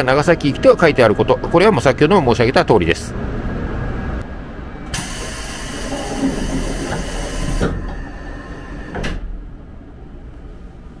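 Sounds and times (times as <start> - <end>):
air hiss of door: 4.9 - 8.0.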